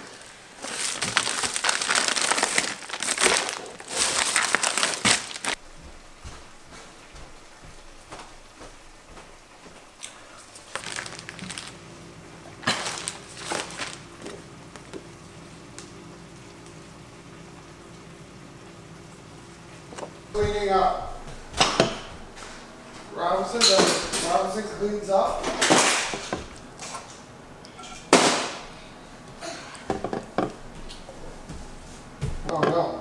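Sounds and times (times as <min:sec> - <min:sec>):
plastic bags and foil crinkling: 0:00.0 - 0:05.6, 0:09.9 - 0:15.0, 0:20.4 - 0:27.2.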